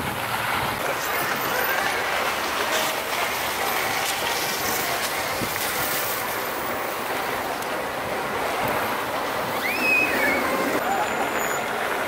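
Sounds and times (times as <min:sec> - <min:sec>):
distant crowd voices: 0:00.4 - 0:12.0.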